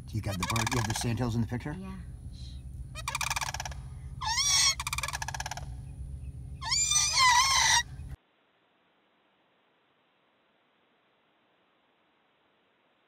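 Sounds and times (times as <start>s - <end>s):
cranes calling: 0.0s - 1.5s, 2.5s - 8.2s.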